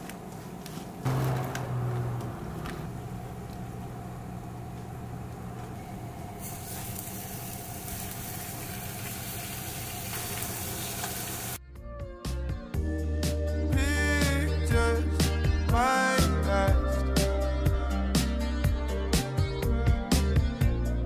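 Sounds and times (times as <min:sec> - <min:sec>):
steady low hum: 0:00.0 - 0:08.1
food sizzling in a frying pan: 0:06.4 - 0:11.6.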